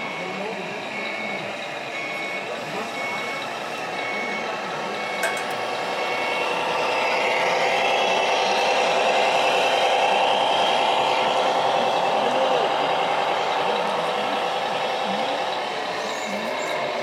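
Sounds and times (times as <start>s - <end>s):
machine running: 5.0s - 17.0s.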